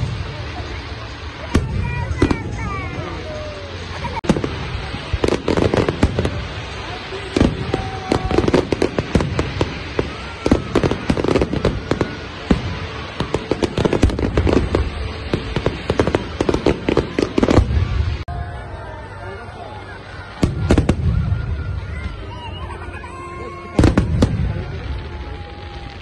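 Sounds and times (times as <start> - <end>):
fireworks bangs and crackles: 0.0 - 26.0.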